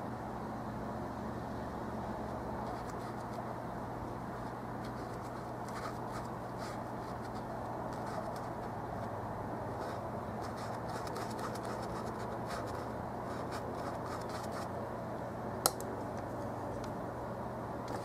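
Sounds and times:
steady low hum: 0.0 - 18.0
brush scrubbing on canvas: 4.9 - 8.8, 9.8 - 14.7.

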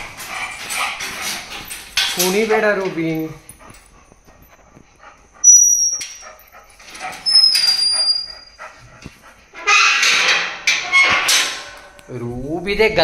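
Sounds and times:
dog barking and whining: 5.4 - 8.8.

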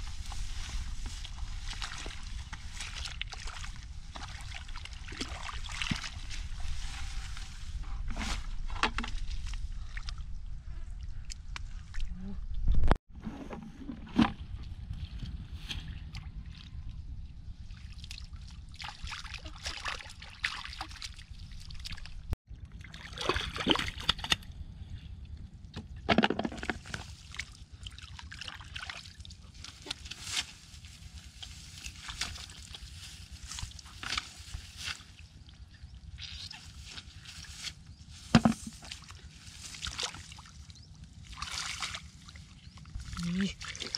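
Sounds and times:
hands sloshing in muddy water: 0.0 - 10.2, 17.7 - 24.4, 26.5 - 35.6, 36.2 - 43.9.

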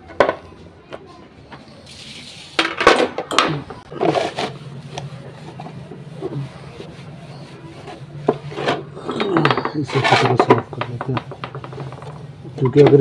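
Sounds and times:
towel rubbing plastic: 3.7 - 13.0
plastic knocking on stone floor: 9.1 - 12.2.

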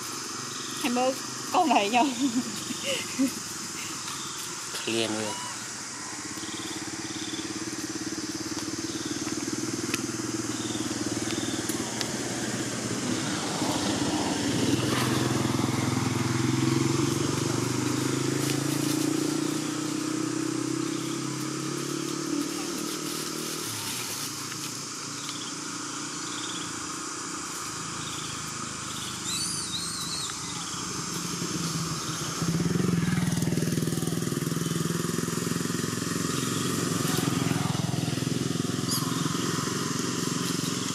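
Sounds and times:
engine running steadily: 0.0 - 29.3, 30.2 - 40.9
faint high chirps: 38.8 - 39.8.

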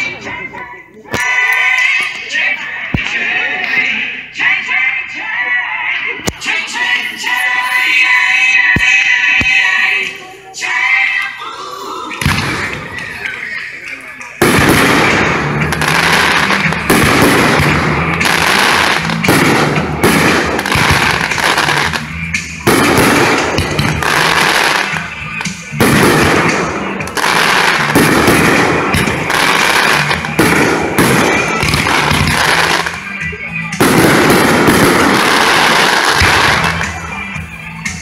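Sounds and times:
music: 0.0 - 38.0
fireworks bursting: 2.9 - 3.8, 6.2 - 10.3, 12.2 - 37.3.

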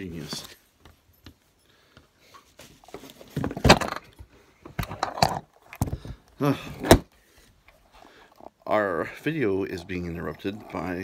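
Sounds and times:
camera handling knocks and rattles: 2.8 - 7.1.

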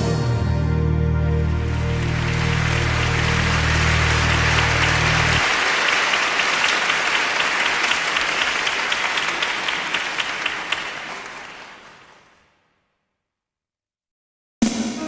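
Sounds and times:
audience applauding: 1.5 - 12.6.

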